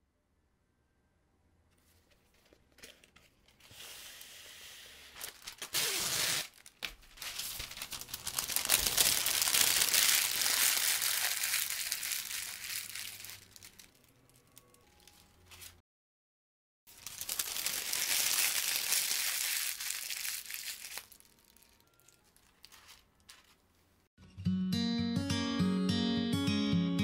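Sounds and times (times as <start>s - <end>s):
paper crinkling: 1.8s - 15.8s, 16.9s - 24.0s
paper tearing: 3.6s - 13.9s.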